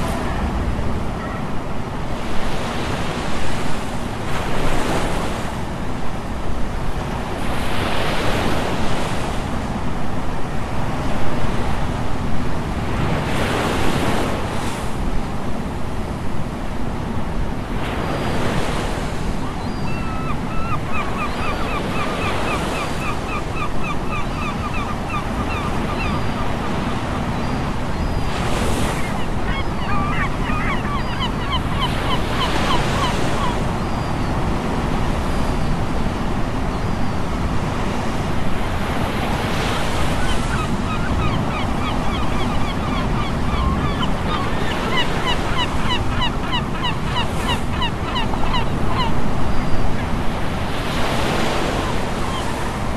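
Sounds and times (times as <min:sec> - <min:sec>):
surf breaking on beach: 0:00.0 - 0:03.8.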